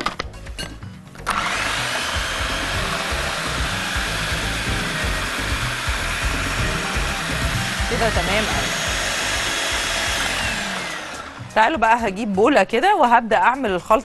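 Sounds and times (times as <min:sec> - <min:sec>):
food processor whining: 0:01.2 - 0:11.6.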